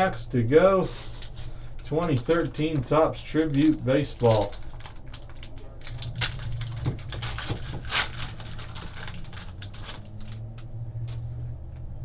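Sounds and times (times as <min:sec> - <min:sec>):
low hum: 0:00.0 - 0:12.0
card pack tearing and rustling: 0:00.9 - 0:10.5.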